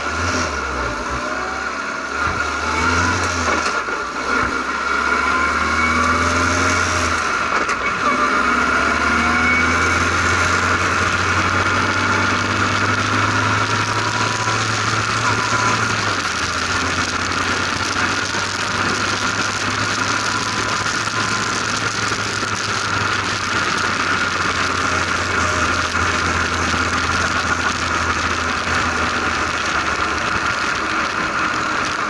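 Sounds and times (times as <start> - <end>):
race car engine running: 0.0 - 32.0
steady rushing noise: 8.4 - 32.0.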